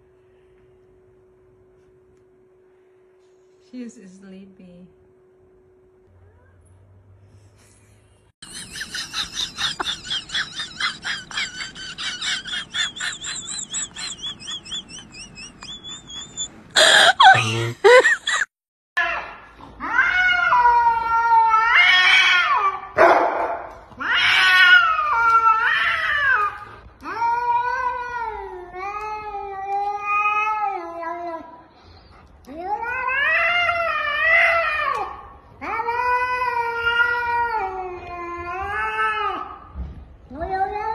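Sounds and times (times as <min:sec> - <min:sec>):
cats yowling: 0:19.0 - 0:23.0, 0:23.9 - 0:31.5, 0:32.5 - 0:39.7.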